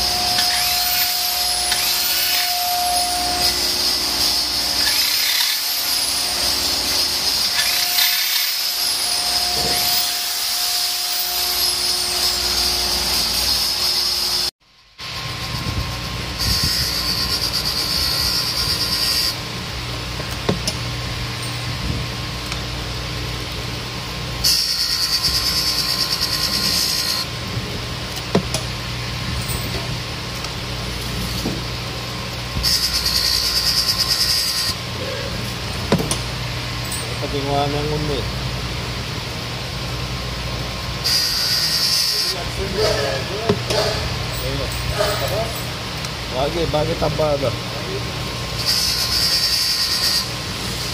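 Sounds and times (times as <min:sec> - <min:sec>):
electric hand drill running: 0:00.0 - 0:14.5, 0:15.1 - 0:19.4, 0:24.4 - 0:27.3, 0:32.6 - 0:34.8, 0:41.0 - 0:42.6, 0:48.6 - 0:50.9
grinding wheel hiss: 0:00.0 - 0:19.4, 0:24.4 - 0:27.3, 0:28.2 - 0:38.2, 0:41.0 - 0:50.9.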